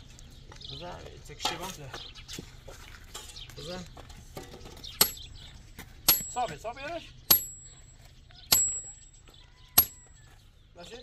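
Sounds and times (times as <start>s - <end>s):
sledgehammer striking metal rod: 5.0s - 5.3s, 6.1s - 6.6s, 7.3s - 7.9s, 8.5s - 9.0s, 9.8s - 10.1s.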